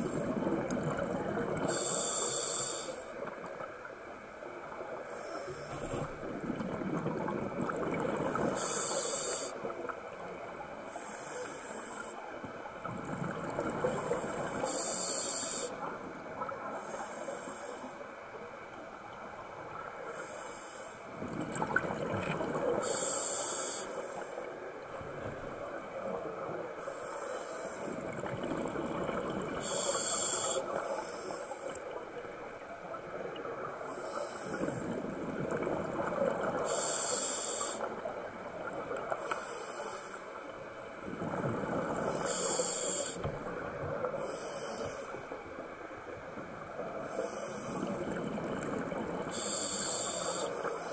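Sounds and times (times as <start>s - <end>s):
exhaled bubbles rumbling: 0.0s - 1.8s, 5.7s - 8.7s, 12.7s - 14.7s, 21.1s - 22.8s, 28.0s - 29.8s, 34.6s - 36.7s, 40.9s - 42.4s, 47.8s - 49.5s
regulator inhale hiss: 1.6s - 3.3s, 5.0s - 6.2s, 8.4s - 9.7s, 10.8s - 12.3s, 13.9s - 15.9s, 16.6s - 18.2s, 20.0s - 21.1s, 22.8s - 24.6s, 26.8s - 28.1s, 29.5s - 32.0s, 33.8s - 35.0s, 36.6s - 38.1s, 39.2s - 40.5s, 42.0s - 43.4s, 44.1s - 45.4s, 47.0s - 48.2s, 49.3s - 50.9s.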